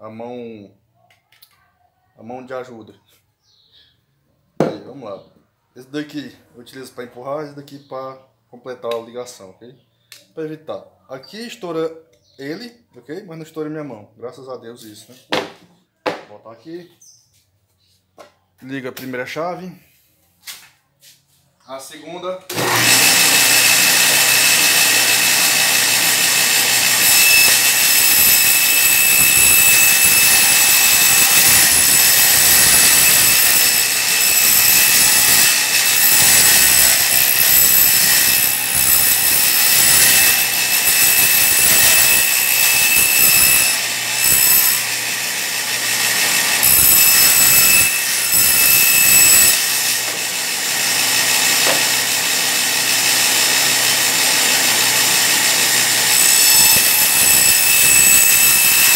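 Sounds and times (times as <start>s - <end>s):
table saw ripping wood: 22.5s - 58.9s.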